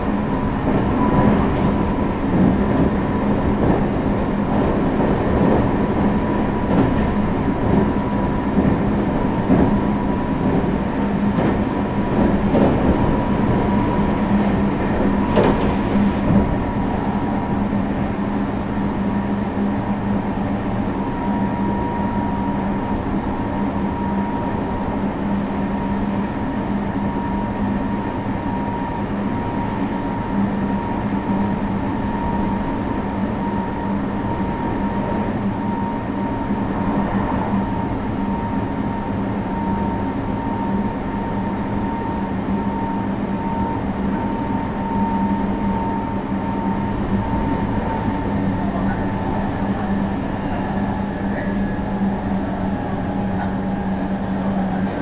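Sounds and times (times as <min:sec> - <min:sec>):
train wheels rumbling on rail: 0:00.0 - 0:55.0
rail clicks: 0:14.4 - 0:16.6.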